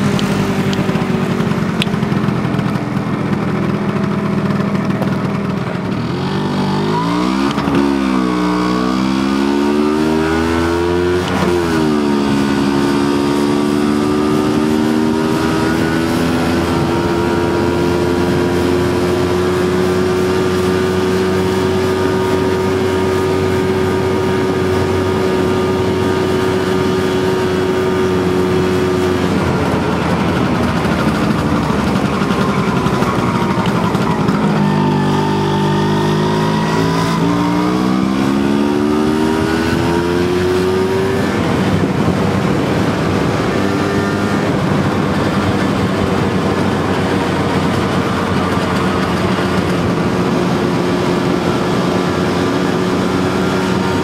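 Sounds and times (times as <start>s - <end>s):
scooter engine running: 0.0s - 54.0s.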